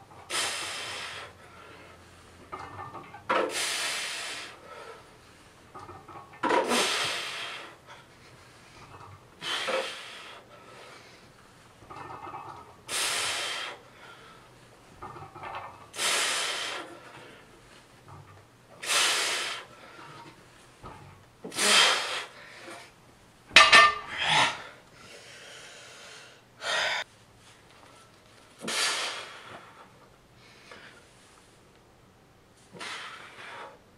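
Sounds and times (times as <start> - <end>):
man breathing: 0.2 - 2.5, 3.5 - 5.7, 6.6 - 11.7, 12.9 - 14.8, 15.9 - 17.9, 18.8 - 20.7, 24.1 - 27.1, 27.8 - 31.5, 32.6 - 33.9
man exhaling forcefully: 0.3 - 1.4, 6.6 - 7.8, 28.6 - 29.5, 32.7 - 33.8.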